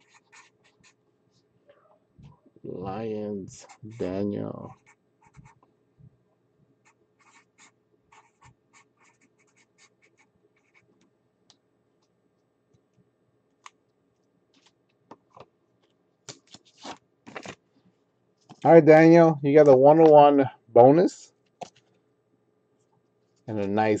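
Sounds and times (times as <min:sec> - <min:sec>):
pen scratching on paper: 0:00.0 - 0:00.9, 0:03.6 - 0:05.6, 0:06.8 - 0:10.8
paper rustling: 0:16.3 - 0:17.6.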